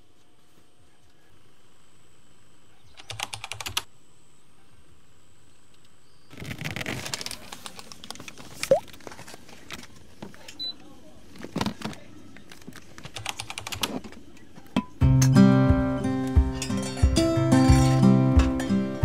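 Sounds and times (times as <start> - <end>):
acoustic guitar music: 15.0 - 19.0.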